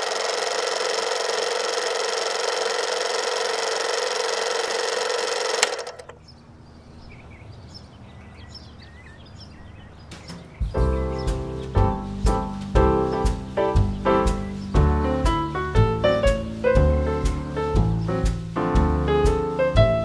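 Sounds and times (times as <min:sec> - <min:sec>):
film projector whirring rattle: 0:00.0 - 0:06.2.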